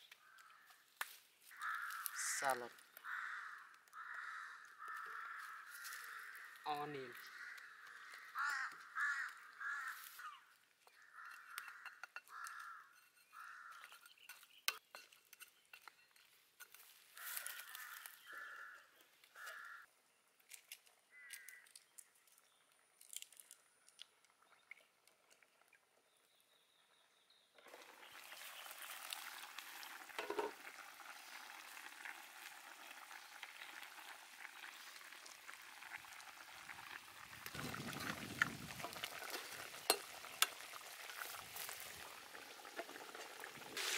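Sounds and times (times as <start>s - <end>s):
crows cawing: 0.1s - 0.9s, 1.5s - 14.0s, 17.1s - 19.9s, 21.1s - 21.8s
meat sizzling and bubbling in a wok: 27.6s - 43.9s.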